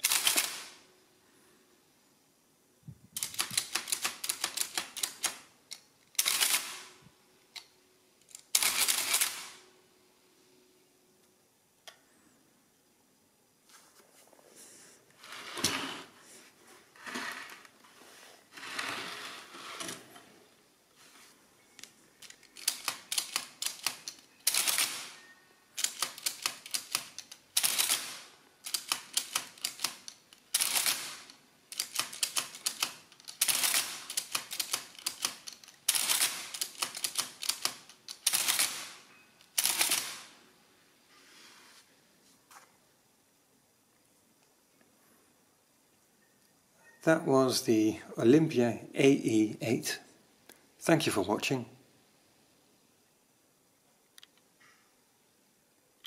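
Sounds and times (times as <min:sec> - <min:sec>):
fast mechanical clicks: 0:00.0 - 0:00.7, 0:03.2 - 0:06.8, 0:22.2 - 0:25.2, 0:25.8 - 0:40.2.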